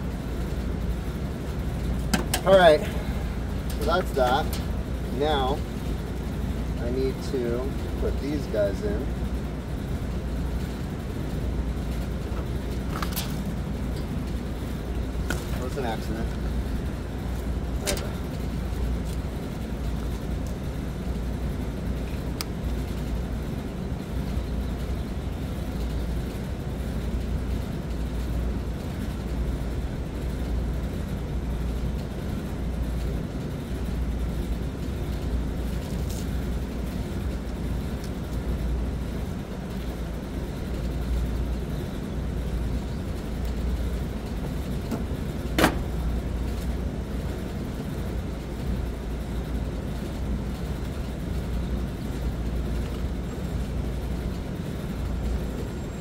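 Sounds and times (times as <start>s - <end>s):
low outdoor rumble: 0.0s - 56.0s.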